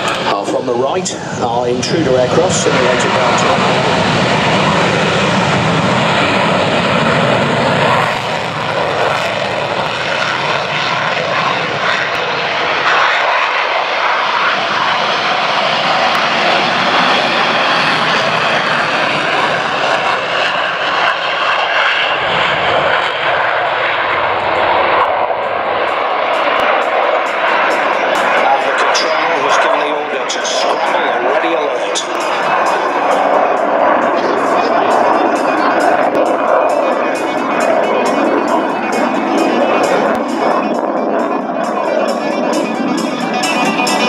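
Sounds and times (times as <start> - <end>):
jet engines roaring: 0.0 - 44.0.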